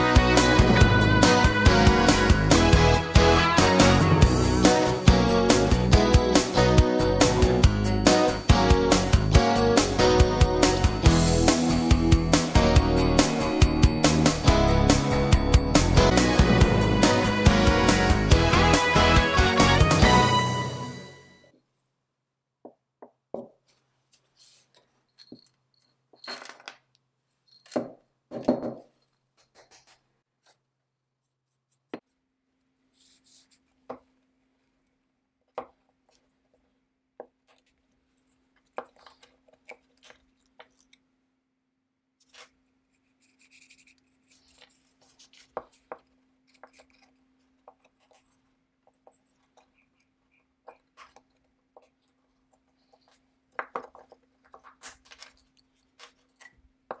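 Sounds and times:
small steel parts clinking on wood: 25.1s - 28.0s.

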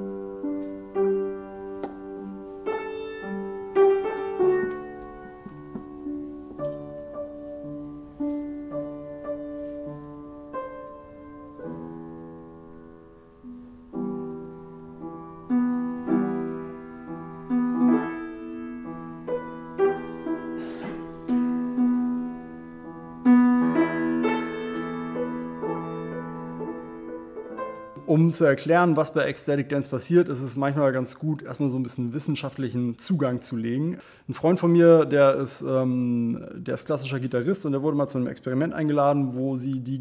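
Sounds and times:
slow gentle piano music: 0.0s - 29.4s.

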